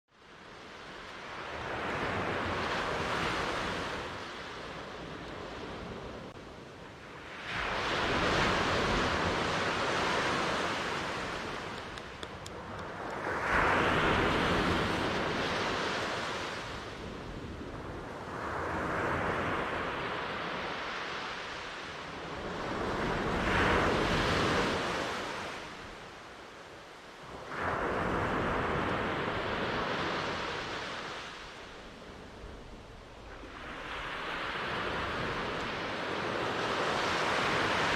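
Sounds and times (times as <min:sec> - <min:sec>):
ocean waves breaking: 0:07.0 - 0:17.3, 0:27.2 - 0:37.9.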